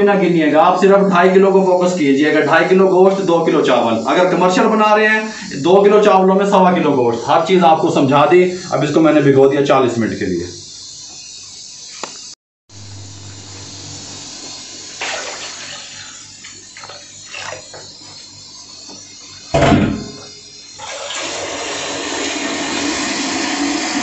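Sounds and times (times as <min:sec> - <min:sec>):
steady hiss: 0:00.0 - 0:23.8
loud thud: 0:19.6 - 0:20.3.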